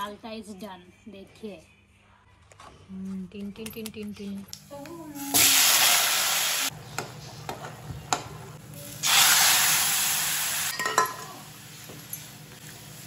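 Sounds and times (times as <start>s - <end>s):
food sizzling in hot oil: 5.2s - 6.7s, 8.8s - 13.0s
metal ladle clinking on pan: 10.7s - 11.4s.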